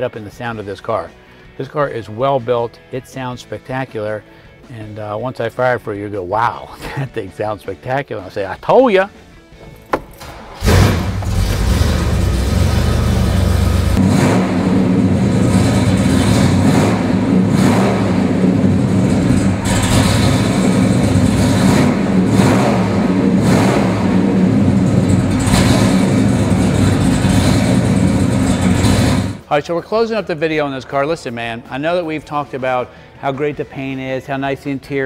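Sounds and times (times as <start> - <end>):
car engine starting and idling: 9.6 - 29.5
car engine revving: 10.2 - 29.4.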